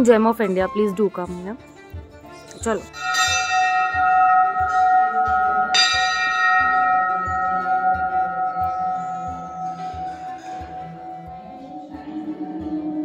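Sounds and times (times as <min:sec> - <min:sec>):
low beat background music: 0:00.0 - 0:13.0
temple bell ringing: 0:02.9 - 0:13.0.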